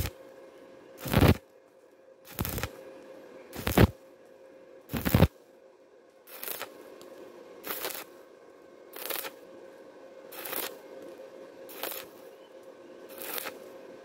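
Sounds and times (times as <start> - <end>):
welding arc crackling: 1.0 - 1.4, 2.3 - 2.8, 3.6 - 4.0, 4.9 - 5.3, 6.3 - 8.2, 8.9 - 9.4, 10.3 - 12.4, 13.1 - 13.8.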